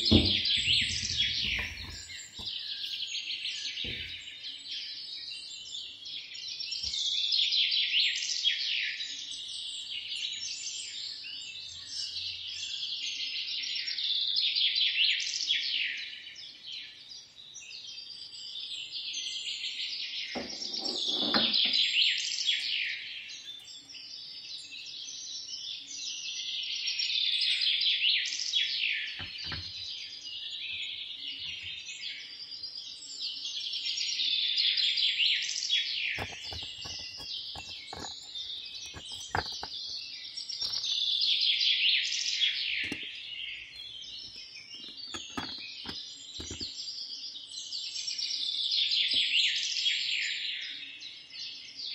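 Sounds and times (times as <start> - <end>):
knock or rustle: 0.0 - 2.5
small birds chirping: 0.0 - 51.9.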